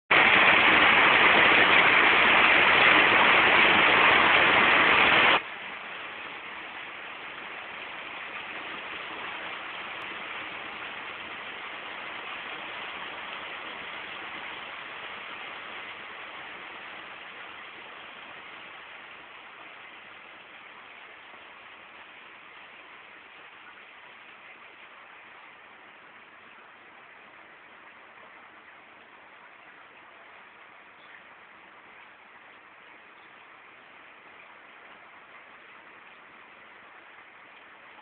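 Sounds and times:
steady rushing noise: 0.1 - 19.6.

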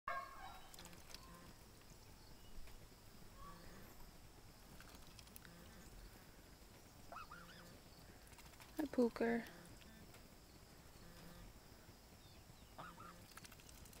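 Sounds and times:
faint clicks: 0.6 - 2.0, 4.7 - 6.0, 13.1 - 14.0.

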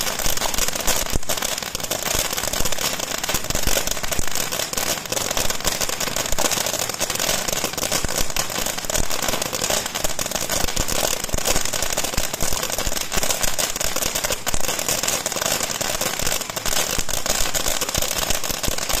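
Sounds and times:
fireworks hissing and crackling: 0.0 - 19.0.

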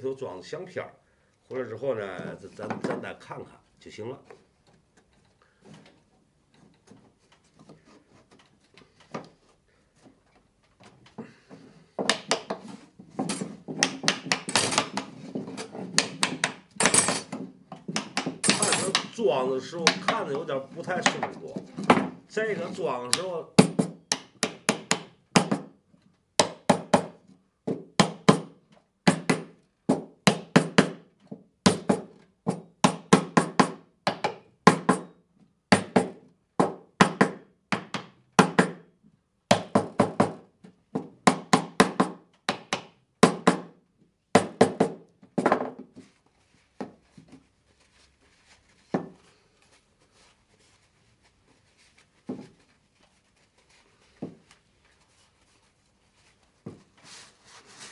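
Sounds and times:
small hammer tapping wood: 12.0 - 12.6, 13.7 - 15.1, 16.0 - 16.8, 17.8 - 19.1, 23.1 - 25.7, 41.3 - 43.7.

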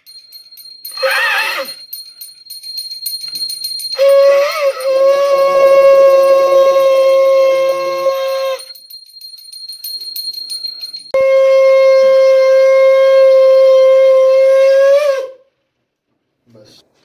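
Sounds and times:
small brass hand bell ringing: 0.0 - 11.2
conch shell blown: 4.0 - 8.7, 11.2 - 15.5.

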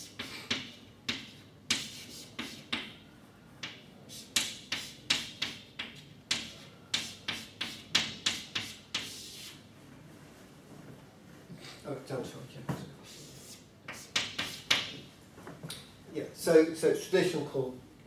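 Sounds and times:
chalk tapping on a blackboard: 0.0 - 3.0, 3.6 - 9.6, 13.1 - 15.1.

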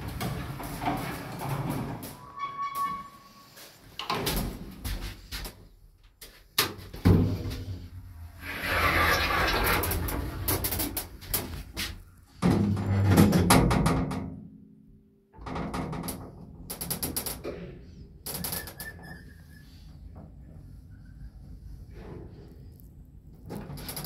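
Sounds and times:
lift doors closing with clatter: 0.0 - 3.3.

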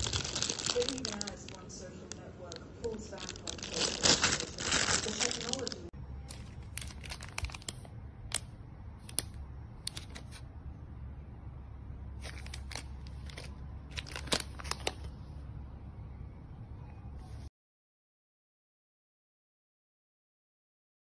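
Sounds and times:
plastic packaging crinkling: 0.0 - 10.4, 12.2 - 15.2
steady low hum: 0.0 - 17.5.

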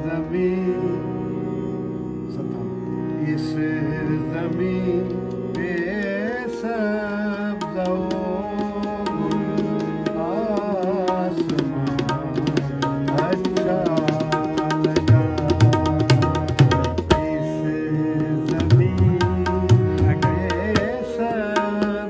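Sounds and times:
harmonium chords: 0.0 - 22.0
man singing: 0.0 - 22.0
tabla strokes: 7.6 - 17.6, 18.2 - 22.0.

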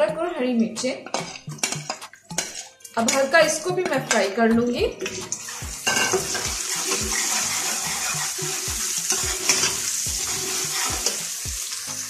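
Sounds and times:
ladle scraping pot: 1.0 - 11.4
vegetables sizzling in hot oil: 5.1 - 12.0.

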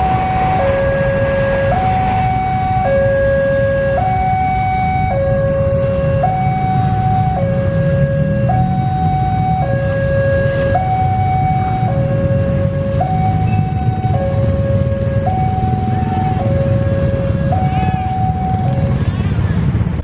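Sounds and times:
train rumbling away: 0.0 - 3.4
two-tone electronic warning alarm: 0.0 - 19.1.

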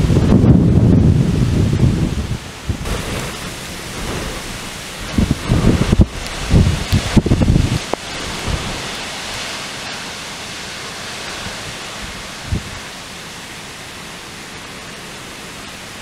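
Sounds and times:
wind buffeting microphone: 0.0 - 10.4, 11.0 - 13.0
strong wind through trees: 0.0 - 16.0.

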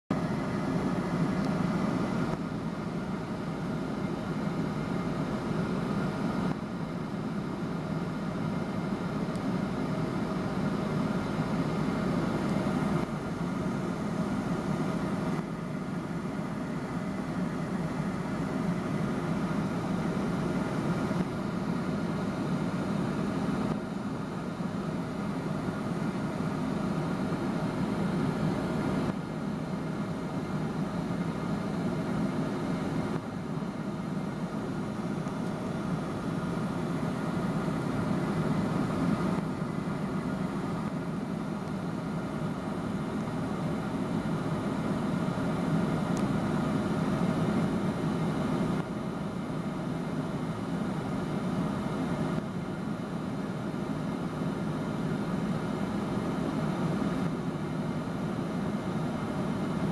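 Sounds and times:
airliner cabin engine noise: 0.0 - 59.9.

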